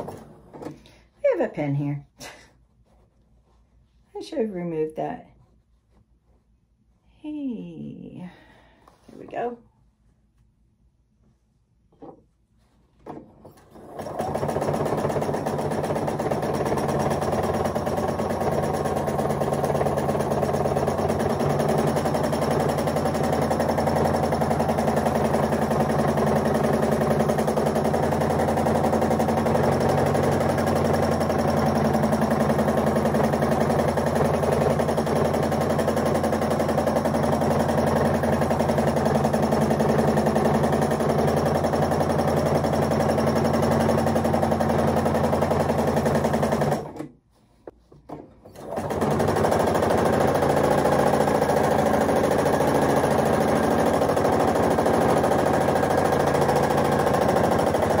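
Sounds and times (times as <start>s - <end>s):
sewing machine running: 0.0s - 0.8s, 13.5s - 47.1s, 48.5s - 58.0s.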